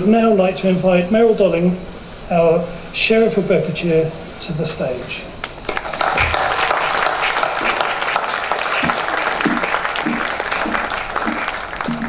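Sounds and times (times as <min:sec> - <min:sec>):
audience applauding: 0:05.6 - 0:12.0.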